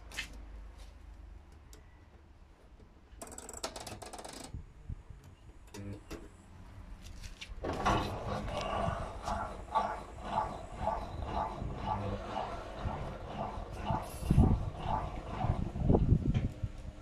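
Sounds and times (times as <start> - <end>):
washing machine drum turning: 7.6 - 16.5.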